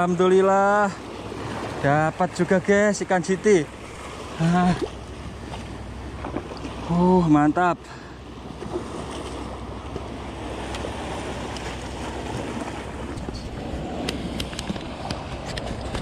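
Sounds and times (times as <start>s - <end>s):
surf washing over rocks: 0.0s - 16.0s
wind buffeting microphone: 8.8s - 16.0s.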